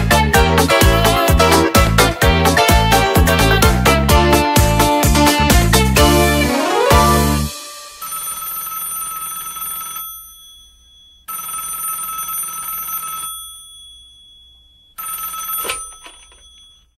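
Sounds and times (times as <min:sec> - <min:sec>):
telephone ringing: 0:07.7 - 0:17.0.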